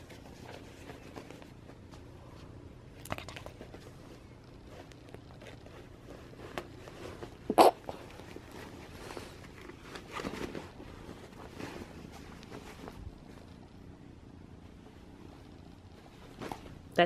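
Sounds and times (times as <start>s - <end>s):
jeans rustling on carpet: 3.7s - 13.7s, 14.6s - 17.0s.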